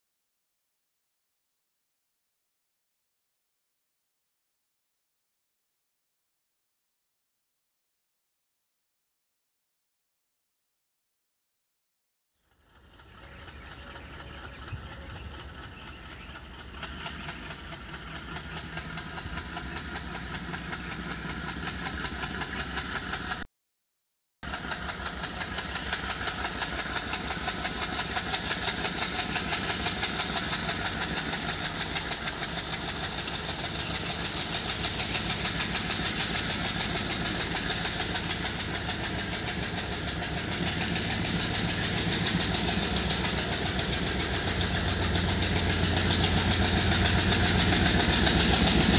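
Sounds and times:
diesel locomotive chugging: 0:12.4 - 0:23.5, 0:24.4 - 0:48.9.

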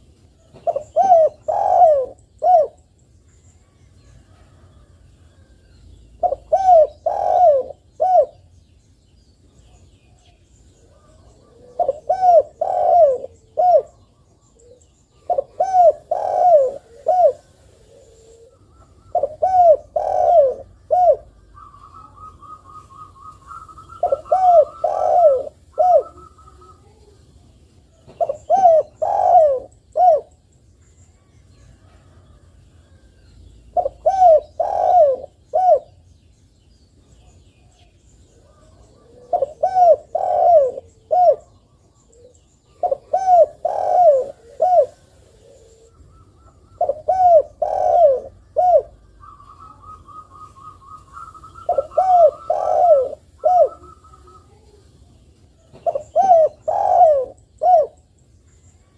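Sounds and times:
dove cooing: 0:00.0 - 0:02.9, 0:06.2 - 0:08.5, 0:10.8 - 0:27.2, 0:27.9 - 0:30.4, 0:33.7 - 0:36.0, 0:38.4 - 0:54.9, 0:55.5 - 0:58.1
faint bird chirps and trill: 0:00.0 - 0:58.9.

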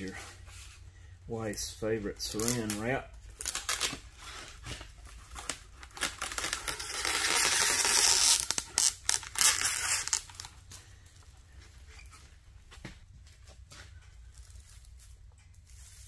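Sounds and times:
cling wrap pulled and torn: 0:02.3 - 0:10.8.

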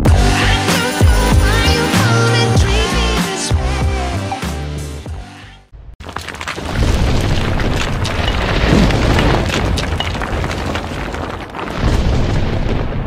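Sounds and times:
crackling debris: 0:06.0 - 0:13.0
deep rumbling boom: 0:06.7 - 0:13.0.

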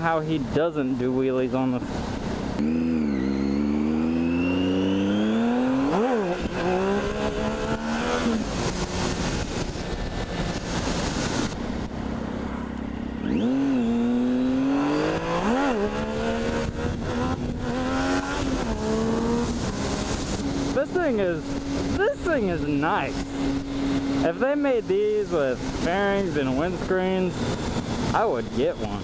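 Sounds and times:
motorcycle engine revving: 0:01.8 - 0:29.0
wind on microphone: 0:13.4 - 0:24.2.

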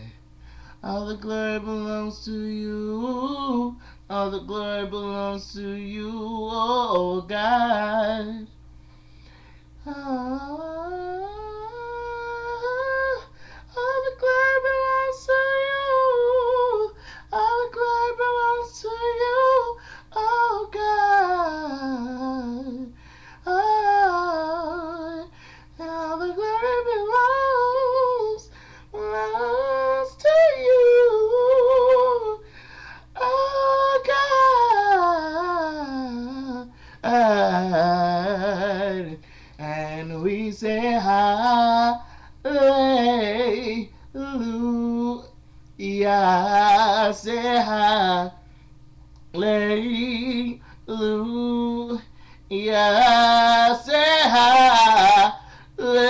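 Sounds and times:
singer breathing: 0:00.4 - 0:00.8, 0:08.7 - 0:09.8, 0:13.3 - 0:13.8, 0:16.9 - 0:17.3, 0:19.8 - 0:20.1, 0:22.9 - 0:23.5, 0:25.3 - 0:25.8, 0:28.4 - 0:29.0, 0:32.4 - 0:33.2, 0:36.7 - 0:37.0, 0:39.2 - 0:39.6, 0:42.0 - 0:42.4, 0:48.4 - 0:48.8, 0:52.1 - 0:52.5, 0:55.4 - 0:55.8
man singing: 0:00.8 - 0:08.6, 0:09.8 - 0:32.5, 0:33.1 - 0:48.4, 0:49.3 - 0:56.0.

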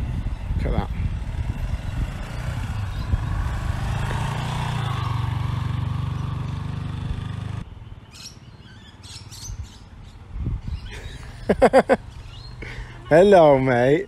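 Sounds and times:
motorcycle engine at low revs: 0:00.0 - 0:07.7.

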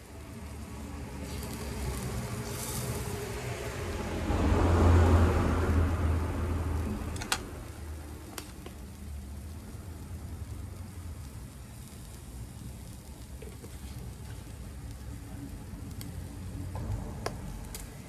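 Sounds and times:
meat sizzling on a grill: 0:00.0 - 0:18.0
low rumble: 0:03.0 - 0:08.2, 0:14.8 - 0:18.0.

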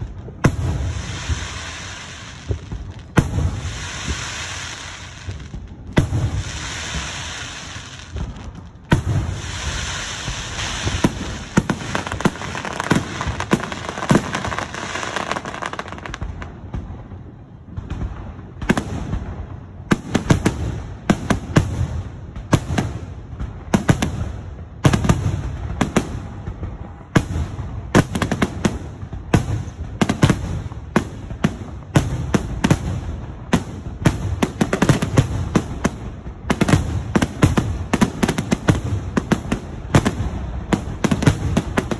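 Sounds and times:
fireworks bursting with booms: 0:00.0 - 0:41.9
fireworks crackling hiss: 0:00.0 - 0:41.9.

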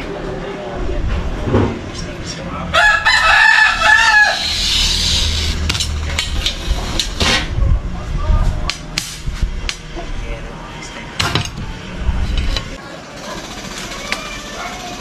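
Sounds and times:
rooster crowing: 0:02.7 - 0:04.7
glass panes and tools clicking: 0:04.3 - 0:07.3, 0:11.2 - 0:11.6.

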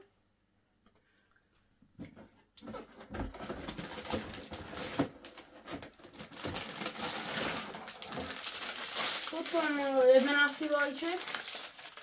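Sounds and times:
plastic bags rustling: 0:03.1 - 0:12.0.

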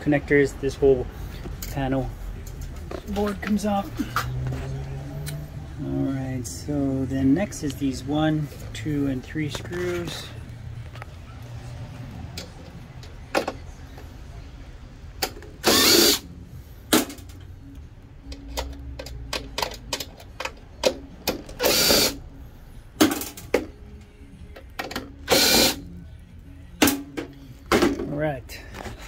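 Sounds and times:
power screwdriver whirring: 0:15.6 - 0:16.2, 0:21.6 - 0:22.2, 0:25.3 - 0:25.8.

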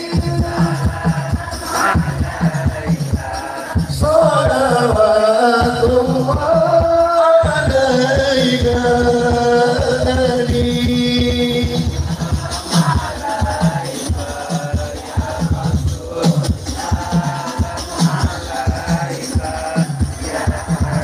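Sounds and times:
men singing devotional song: 0:00.0 - 0:21.0
steady drum beat: 0:00.0 - 0:21.0.

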